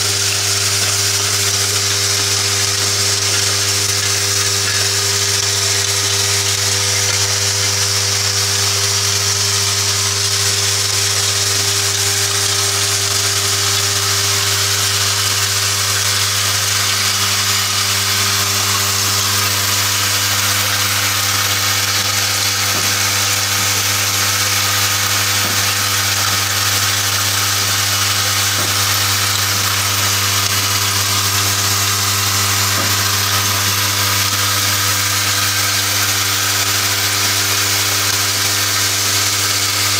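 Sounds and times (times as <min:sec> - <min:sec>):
machine electric buzz: 0:00.0 - 0:39.9.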